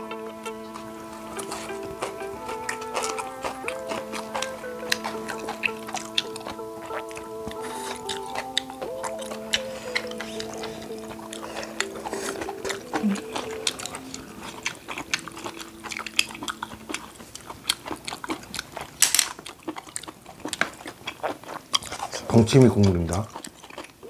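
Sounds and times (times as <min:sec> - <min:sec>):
soft background music: 0:00.0 - 0:18.4
chewing: 0:00.0 - 0:24.0
utensils clicking: 0:19.0 - 0:19.4.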